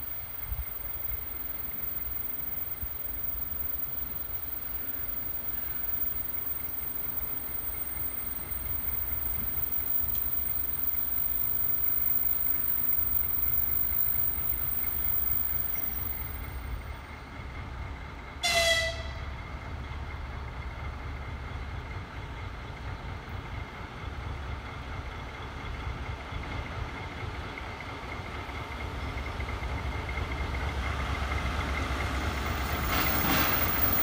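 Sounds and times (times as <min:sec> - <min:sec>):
diesel locomotive engine rumble: 0:00.0 - 0:34.0
locomotive horn toot: 0:18.4 - 0:19.4.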